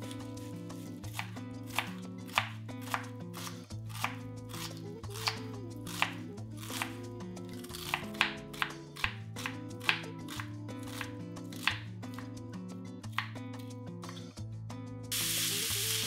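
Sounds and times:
knife chopping on wooden board: 1.1s - 6.9s, 7.7s - 12.2s.

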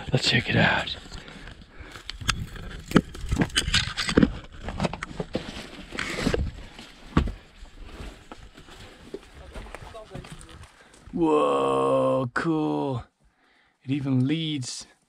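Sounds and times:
branches and twigs rustling: 0.0s - 11.2s.

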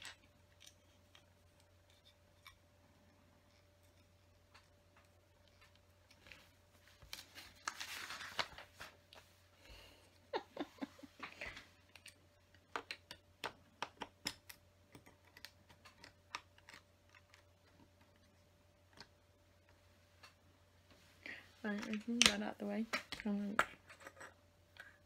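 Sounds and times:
plastic pieces clicking and clattering: 11.9s - 18.2s.

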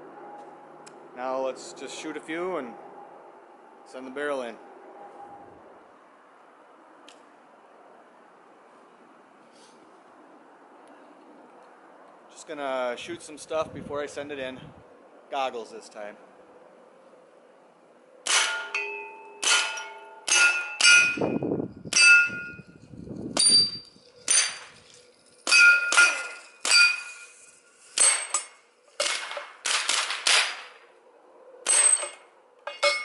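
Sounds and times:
steel plate clanging: 18.3s - 22.7s, 23.4s - 30.8s, 31.7s - 33.0s.

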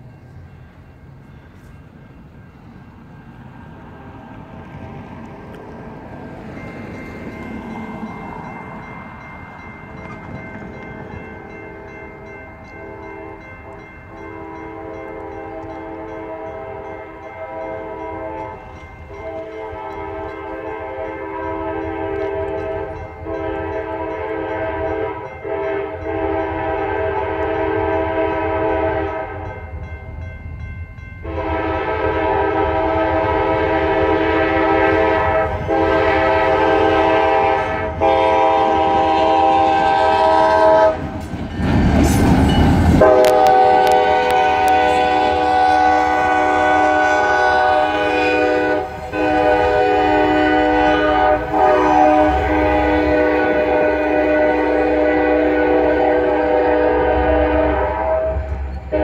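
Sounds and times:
crossing warning bell ringing: 0.0s - 3.9s, 4.9s - 59.0s
locomotive air horn blasts: 12.8s - 29.6s, 31.2s - 41.1s, 43.0s - 59.0s.

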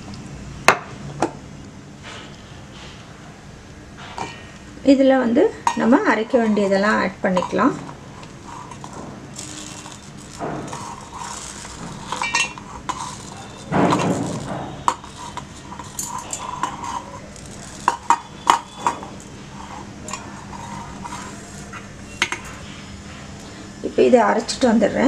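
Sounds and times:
dry pieces rattling into jar: 9.3s - 19.0s
steel plate clinking on jar: 9.4s - 19.3s.

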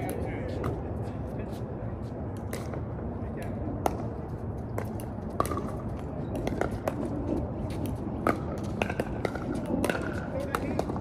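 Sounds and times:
paddles hitting ball: 3.8s - 11.0s.

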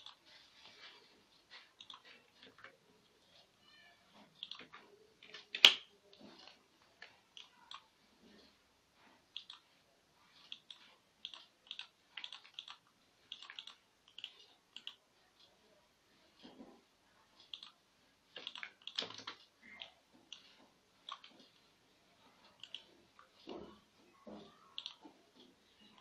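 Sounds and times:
computer mouse clicks: 1.8s - 2.8s, 4.4s - 6.3s, 9.3s - 9.7s, 10.4s - 15.0s, 17.4s - 21.6s, 22.5s - 23.4s, 24.7s - 25.1s.

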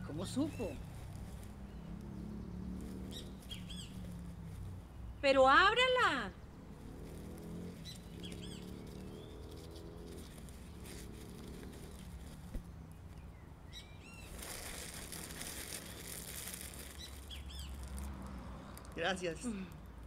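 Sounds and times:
birds chirping: 0.0s - 20.0s
rustling cloth bag and plastic: 0.3s - 1.6s, 8.0s - 12.7s, 14.2s - 19.1s.

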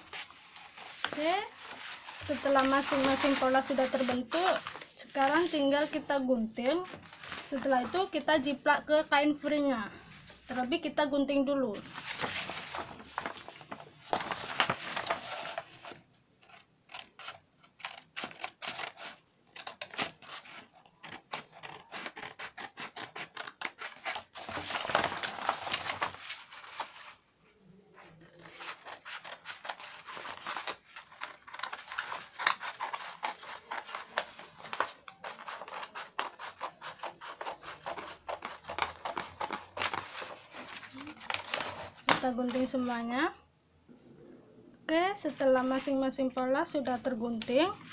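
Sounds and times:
paper rustling: 0.0s - 6.2s, 6.8s - 8.3s, 11.8s - 27.2s, 27.9s - 43.0s
scissors snipping paper: 16.4s - 24.3s, 28.3s - 42.2s.

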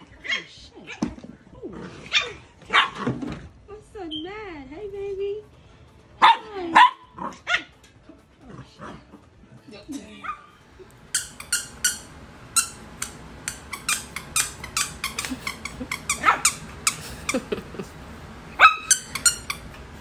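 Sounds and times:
puppy yipping: 11.2s - 17.0s, 18.6s - 19.8s
puppy sliding yelps: 13.5s - 16.6s, 18.6s - 19.6s.

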